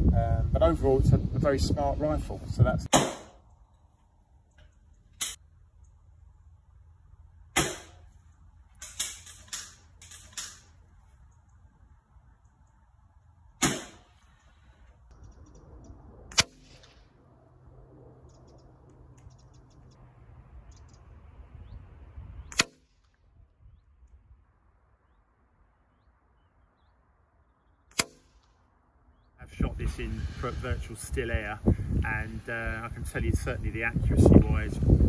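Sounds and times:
air rifle shots: 0:02.9 - 0:03.5, 0:05.2 - 0:05.4, 0:07.6 - 0:08.2, 0:13.6 - 0:14.3, 0:16.3 - 0:17.1.

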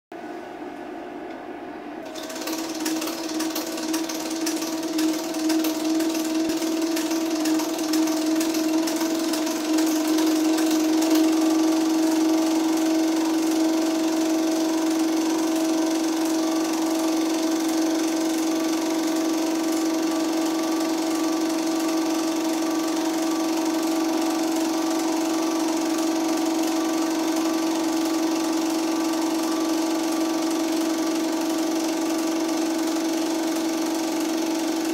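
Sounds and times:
projector motor hum: 0:00.2 - 0:34.9
film transport mechanism clatter: 0:02.1 - 0:13.6.

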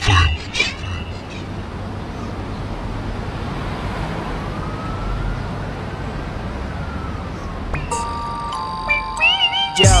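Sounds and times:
faint siren wailing: 0:03.9 - 0:10.0.

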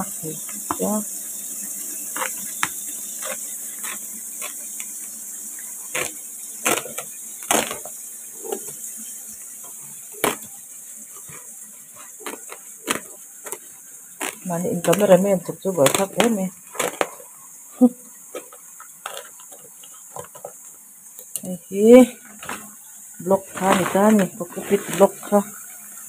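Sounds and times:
plastic crinkling: 0:02.0 - 0:05.2, 0:05.9 - 0:08.8, 0:10.1 - 0:10.5, 0:11.1 - 0:20.7, 0:22.2 - 0:25.6.

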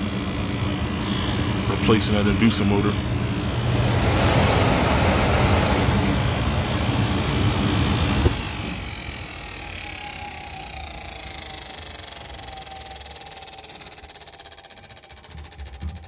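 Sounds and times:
motor humming with faint whine: 0:00.0 - 0:16.0
gas furnace burners rushing: 0:00.4 - 0:09.4.

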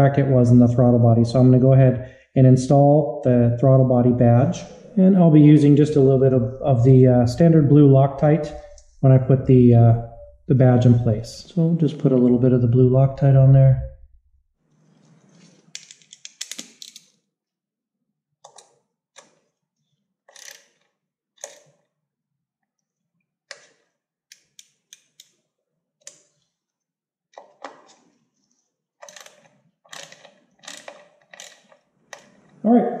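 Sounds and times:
small metal parts clicking: 0:20.3 - 0:21.9, 0:29.0 - 0:32.4.

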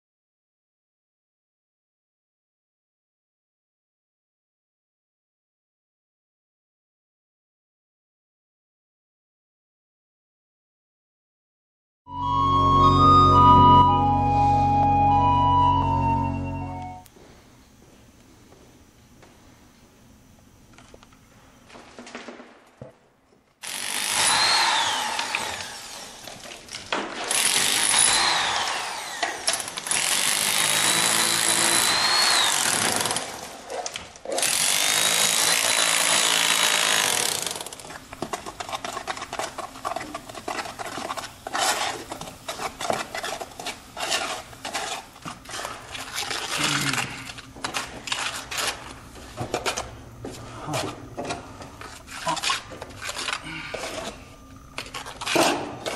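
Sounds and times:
power tool on masonry: 0:23.6 - 0:49.0
scraping and tapping mortar: 0:37.7 - 0:49.9.

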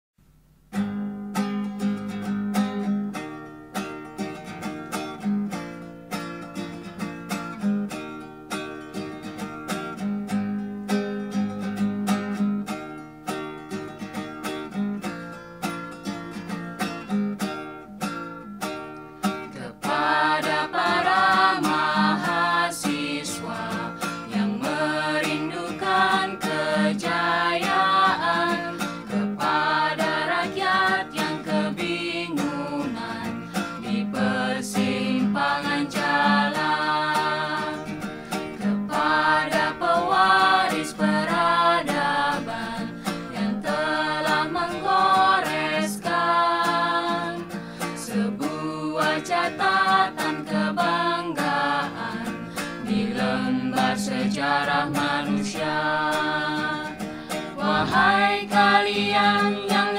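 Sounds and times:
plucked acoustic guitar: 0:00.2 - 0:59.9
person singing: 0:19.5 - 0:59.9.

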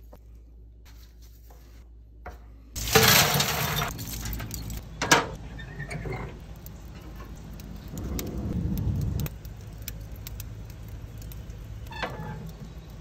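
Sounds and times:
metal clinking and clanking: 0:02.8 - 0:06.4.

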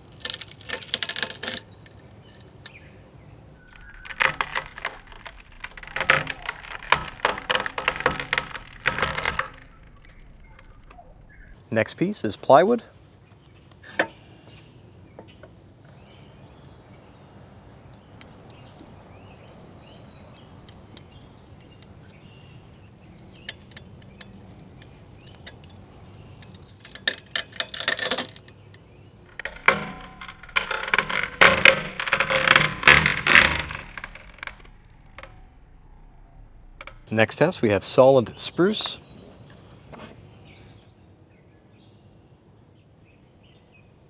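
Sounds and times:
plywood cracking and splintering: 0:00.0 - 0:03.0, 0:03.6 - 0:11.0, 0:15.2 - 0:35.4.

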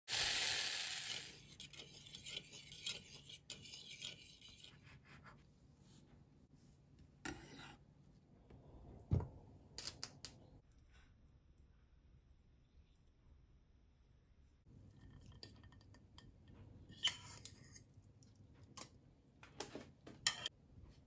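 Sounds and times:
loud hiss: 0:00.1 - 0:01.2
knife scraping bread: 0:01.3 - 0:05.4, 0:07.3 - 0:07.8.

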